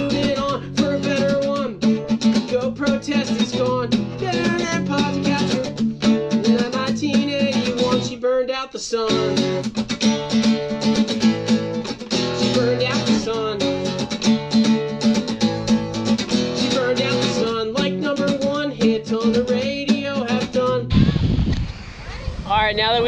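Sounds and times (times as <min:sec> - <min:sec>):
man singing: 0:00.0 - 0:09.7, 0:12.2 - 0:14.2, 0:15.8 - 0:21.2
acoustic guitar strumming: 0:00.0 - 0:21.2
wind noise on microphone: 0:20.5 - 0:23.0.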